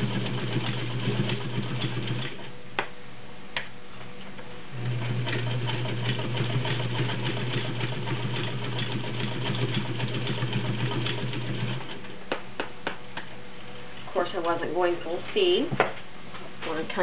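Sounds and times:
fast stitching clatter: 0.0 - 2.5, 4.8 - 12.2
sewing machine motor hum: 0.0 - 2.5, 4.7 - 12.2.

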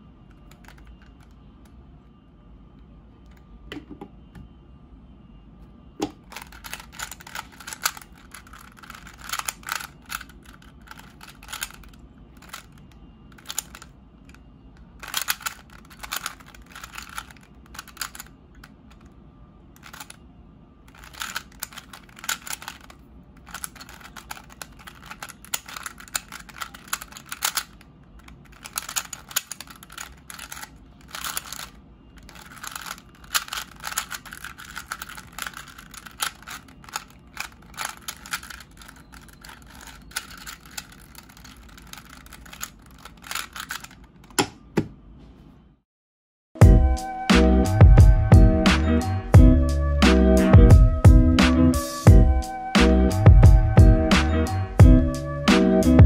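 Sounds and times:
puzzle cube clacking: 0.3 - 1.4, 6.0 - 14.4, 15.0 - 19.1, 19.8 - 20.2, 20.9 - 44.8.

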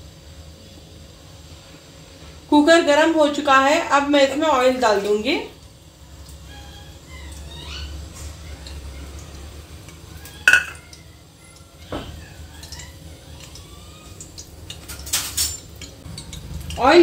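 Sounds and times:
metal utensils and pots clinking: 8.1 - 11.1, 12.1 - 17.0.

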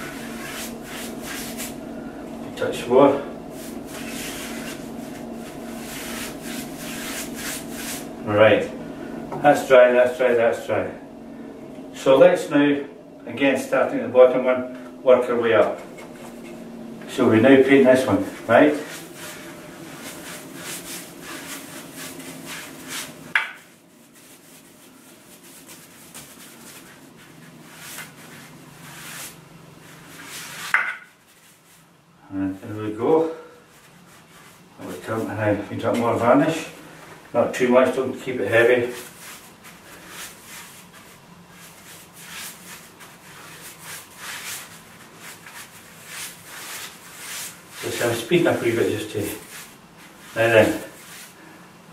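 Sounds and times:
paintbrush swishing: 0.0 - 2.2, 3.1 - 8.3, 15.6 - 31.8, 38.5 - 51.5.

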